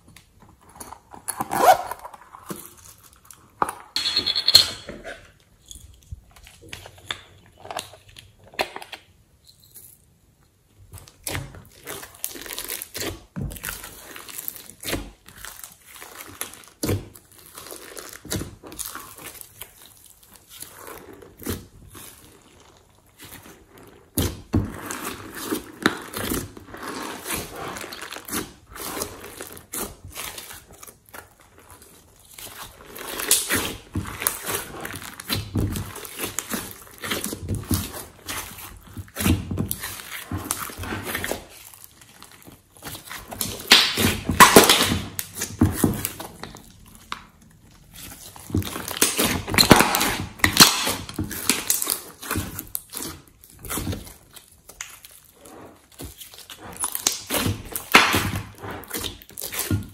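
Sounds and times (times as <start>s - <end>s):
slime squelching and popping: 10.6s - 59.9s.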